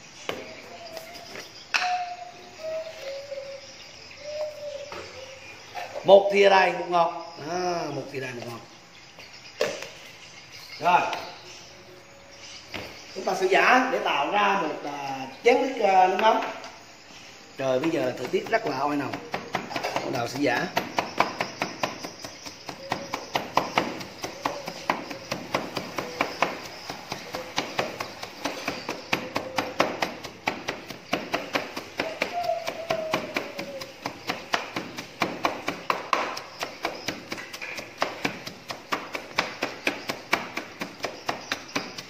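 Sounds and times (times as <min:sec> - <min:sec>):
wooden pestle pounding in mortar: 0:17.6 - 0:42.0.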